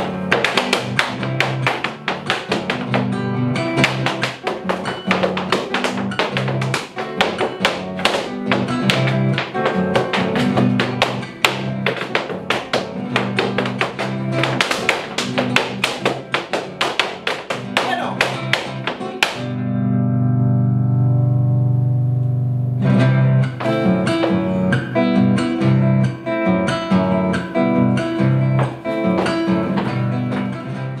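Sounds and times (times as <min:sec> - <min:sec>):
fast rhythmic guitar strumming: 0:00.0 - 0:31.0.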